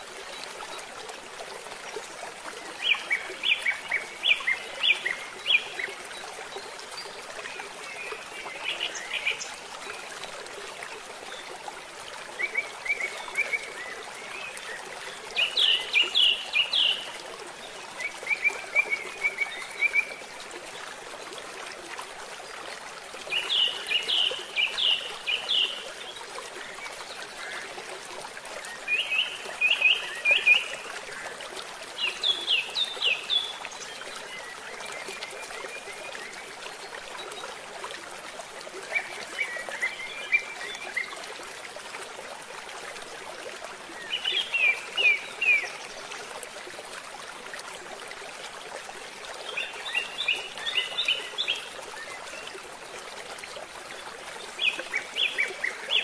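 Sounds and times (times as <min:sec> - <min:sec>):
stream flowing water: 0:00.0 - 0:56.0.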